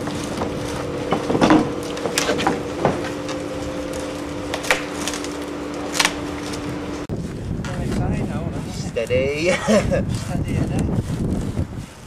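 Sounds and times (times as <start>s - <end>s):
knocks on timber and steel: 0.0s - 3.4s
steady mechanical hum: 0.0s - 12.0s.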